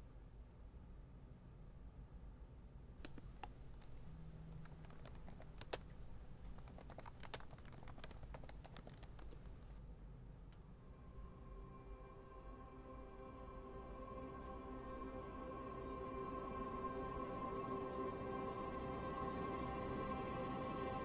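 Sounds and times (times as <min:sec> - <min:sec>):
laptop keyboard typing: 0:03.0 - 0:09.8.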